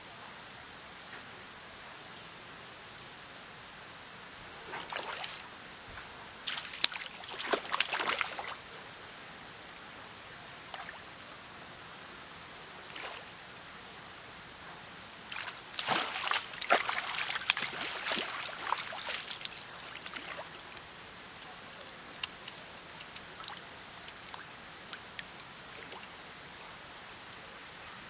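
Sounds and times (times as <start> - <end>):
fish splashing in water: 15.3 - 20.5.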